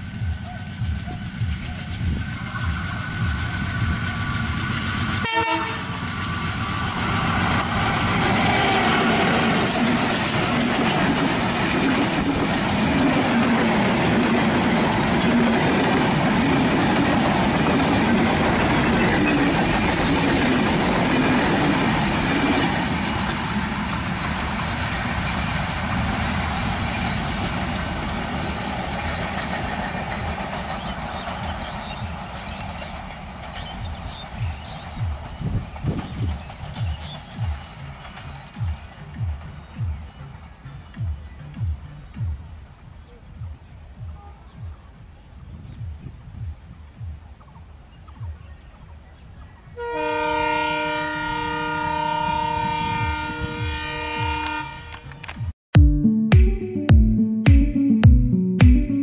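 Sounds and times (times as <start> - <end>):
train wheels clattering on rails: 0.0 - 40.1
train horn: 5.2 - 7.0, 7.6 - 9.6, 49.8 - 55.3.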